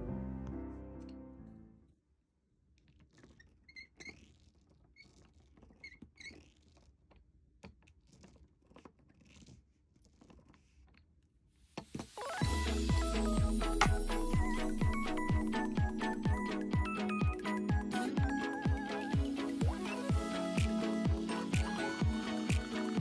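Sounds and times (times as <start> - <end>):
music: 0.0 - 1.9, 12.0 - 23.0.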